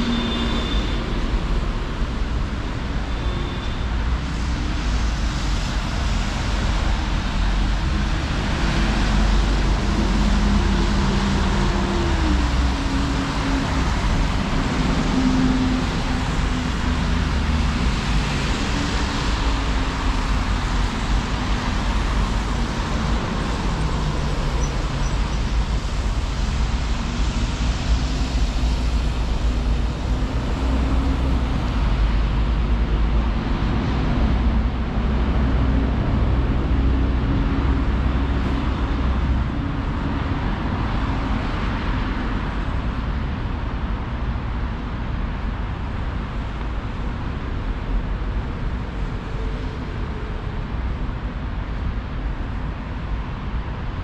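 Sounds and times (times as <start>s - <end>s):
engines running nearby: 0.0s - 54.0s
street traffic rumble: 0.0s - 54.0s.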